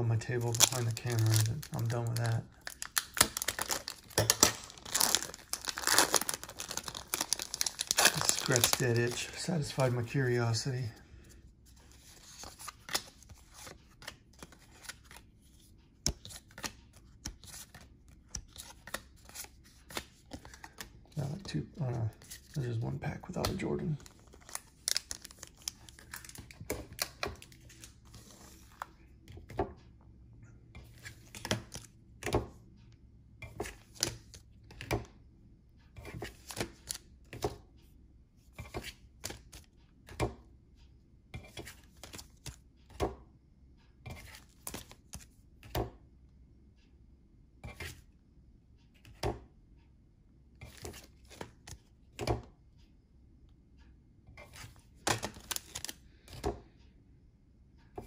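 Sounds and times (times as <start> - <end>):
trading cards flipped by hand: 11.9 - 15.2, 16.0 - 21.4, 36.1 - 37.5, 54.5 - 56.5.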